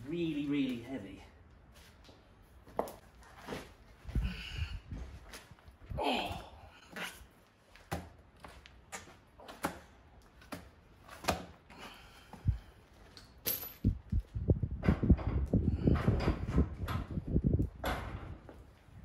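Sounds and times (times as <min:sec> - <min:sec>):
wheel knocks and scuffs: 0:08.9 - 0:11.6
low thumps and metal rattles: 0:13.5 - 0:18.7.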